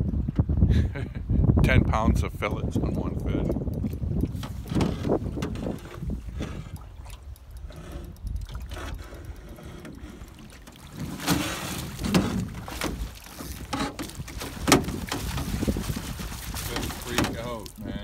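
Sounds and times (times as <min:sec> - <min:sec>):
wind rumble: 0:00.0 - 0:10.1, 0:10.9 - 0:18.0
water slapping against boat: 0:02.4 - 0:18.0
fish splashing: 0:06.2 - 0:17.8.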